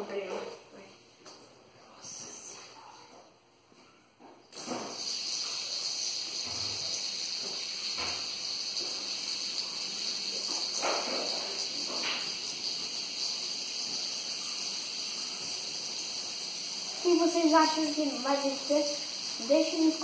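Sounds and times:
fidget spinners whirring: 4.5 - 20.0.

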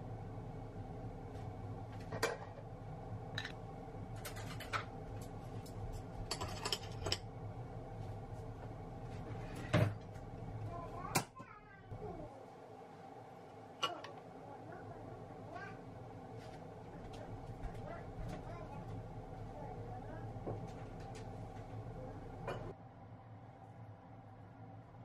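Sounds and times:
tableware clicking and clinking: 6.3 - 7.2.

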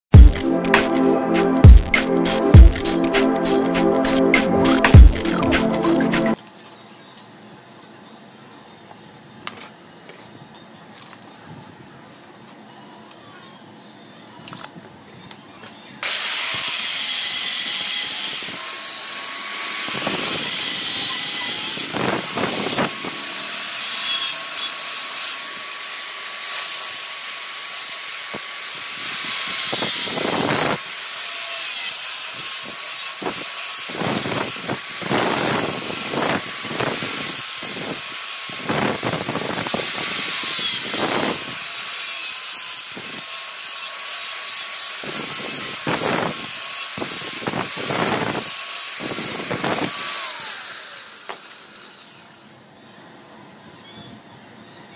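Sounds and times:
angle grinder cutting steel: 16.0 - 52.5.

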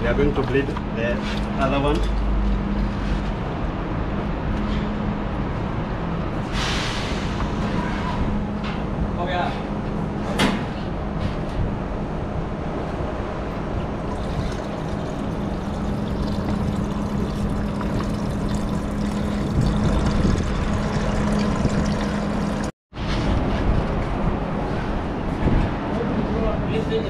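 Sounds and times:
machinery rumble and hiss: 6.4 - 8.2.

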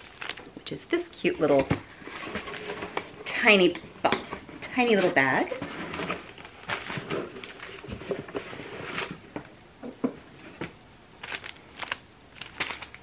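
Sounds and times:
paper packaging rustling: 0.0 - 0.5, 4.9 - 9.3, 11.2 - 13.0.

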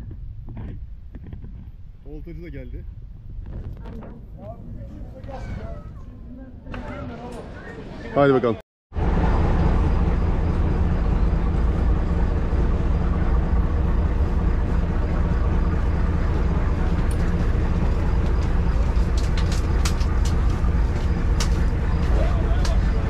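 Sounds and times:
motorboat engine drone: 8.9 - 23.0.

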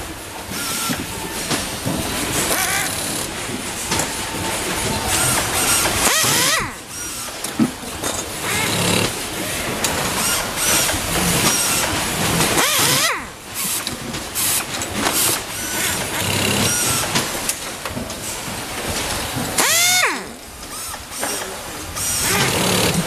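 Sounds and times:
pneumatic screwdriver whining: 0.5 - 1.1, 2.5 - 3.3, 5.0 - 7.7, 8.4 - 9.2, 10.1 - 17.2, 19.6 - 23.0.

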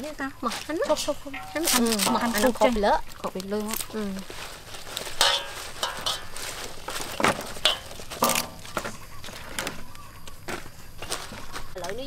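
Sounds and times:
leaves rustling: 0.0 - 12.0.

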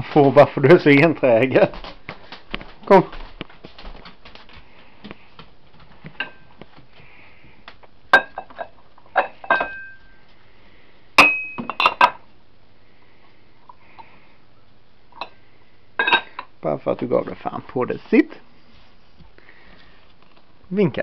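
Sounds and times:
kitchenware clinking: 6.2 - 6.5, 8.1 - 10.1, 11.2 - 12.2, 16.0 - 16.5.

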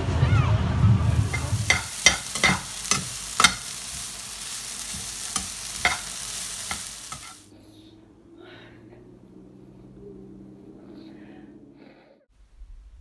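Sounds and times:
vegetables sizzling in a pan: 1.2 - 7.5
spatula scraping and tapping pan: 1.3 - 7.4.

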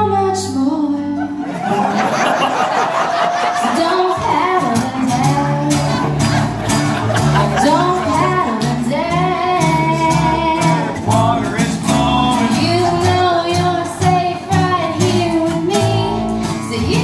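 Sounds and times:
acoustic guitar strumming: 2.8 - 17.0
upright bass line: 3.8 - 17.0.

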